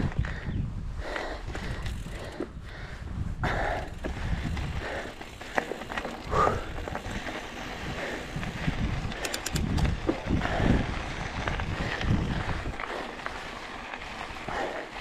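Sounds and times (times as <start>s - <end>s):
wind buffeting microphone: 0.0s - 14.8s
fast rattling clicks: 9.0s - 10.1s.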